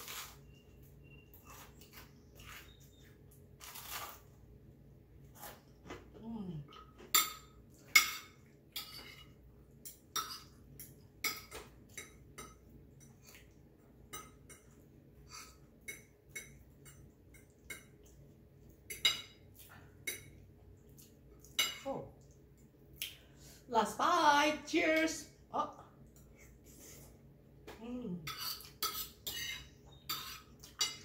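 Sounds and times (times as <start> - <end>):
cutlery clinking on a plate: 6.8 - 13.2, 18.9 - 19.4, 28.3 - 31.0.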